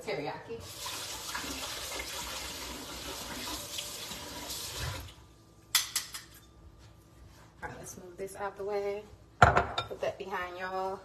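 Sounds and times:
faucet running: 0.6s - 5.3s.

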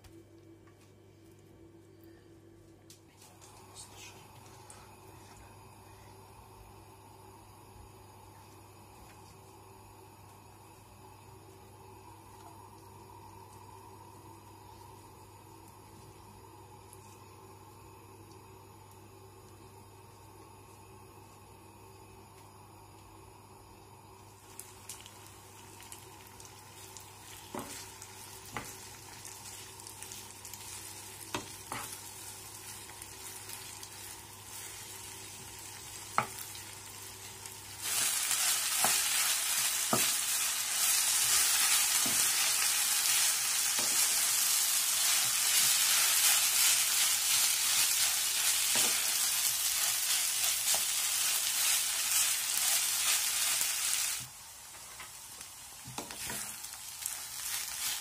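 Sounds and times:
potato sizzling in pan: 24.0s - 58.0s.

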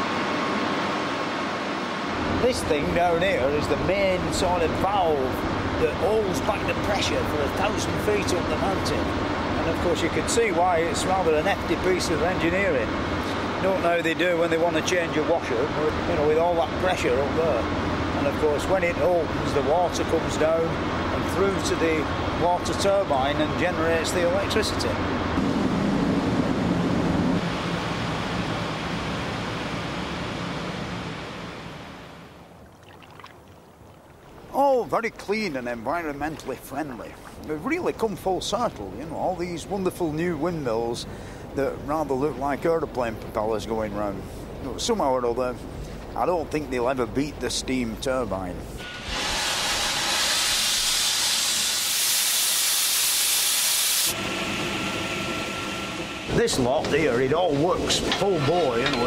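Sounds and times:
machinery running with thin whine: 0.0s - 32.4s, 48.7s - 59.0s
low turbine hum: 0.0s - 59.0s
rushing water: 32.4s - 39.2s
steam hissing under pressure: 48.8s - 54.3s.

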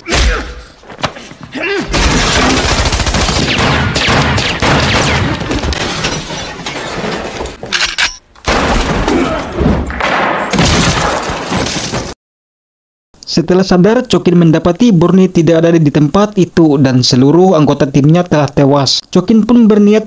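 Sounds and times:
gunshots: 1.9s - 6.0s, 8.5s - 11.6s.

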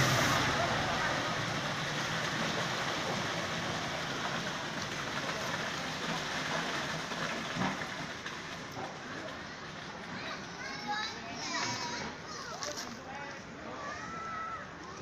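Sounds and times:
concrete mixer truck running: 0.0s - 10.4s.

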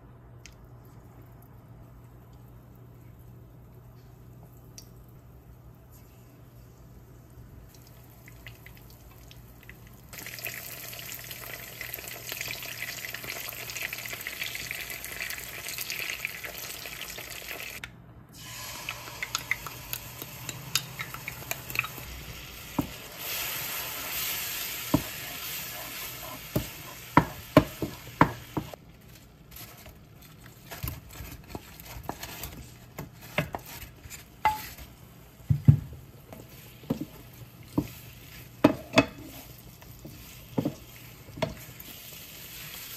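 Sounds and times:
chicken sizzling in hot oil: 10.1s - 17.8s, 18.4s - 28.8s, 36.5s - 42.9s
sauce sizzling in a pan: 10.2s - 17.8s, 18.4s - 28.8s, 36.5s - 42.9s
spatula scraping a pan: 23.3s - 27.9s.

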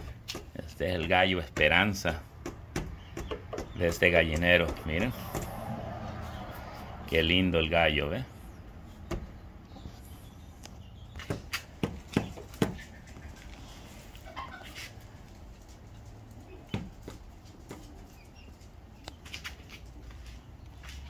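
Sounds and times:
sharp knocks and taps: 0.0s - 1.8s, 2.4s - 5.6s, 11.2s - 12.8s
chickens and chicks foraging: 0.0s - 21.0s.

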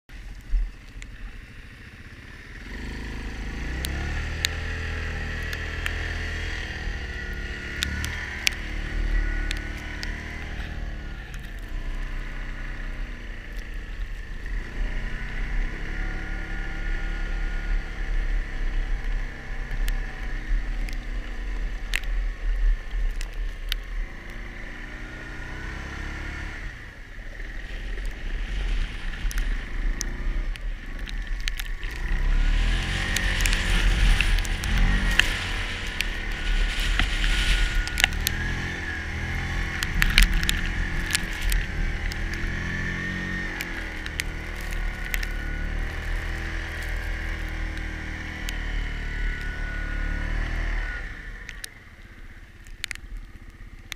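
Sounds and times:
atv engine revving: 1.4s - 53.9s
sharp clicks: 5.3s - 12.1s, 29.0s - 48.6s
steady high whine: 26.6s - 47.5s.

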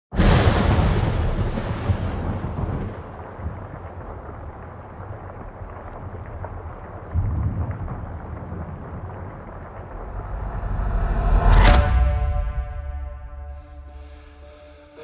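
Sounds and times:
deep boom: 0.2s - 2.8s, 9.5s - 15.0s
faint crackle: 1.1s - 11.8s
low cinematic rumble: 9.0s - 15.0s.

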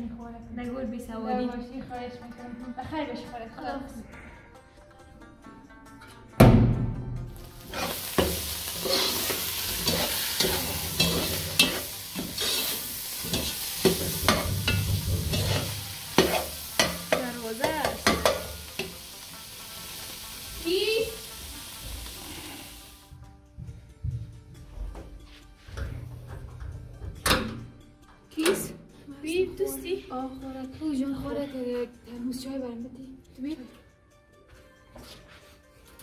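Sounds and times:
food sizzling in a pot: 7.3s - 23.2s
spoon scraping a pot: 7.7s - 17.1s.

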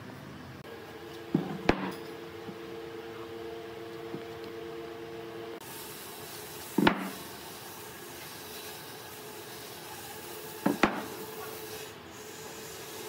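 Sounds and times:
loud wooden thump: 1.3s - 2.0s, 6.8s - 7.1s, 10.6s - 11.1s.

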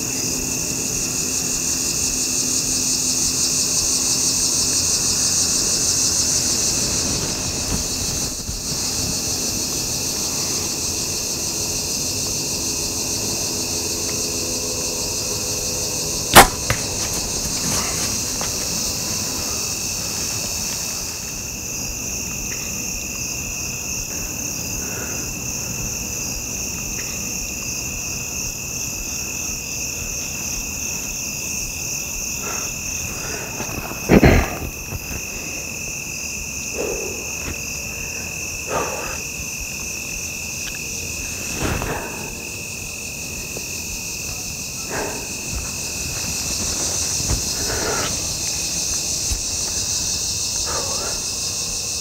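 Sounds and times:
crickets and insects trilling: 0.0s - 52.0s
sharp knock: 16.4s - 17.2s.

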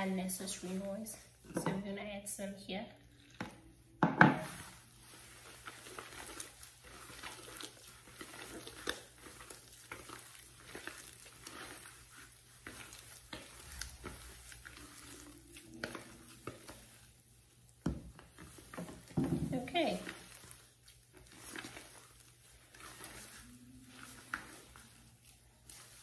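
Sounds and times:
dough squelching and slapping: 0.0s - 26.0s
cup knocking on wooden board: 4.0s - 4.4s.

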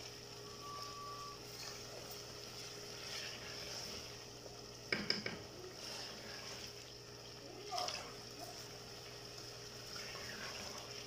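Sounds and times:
faint sizzle of frying: 0.0s - 11.0s.

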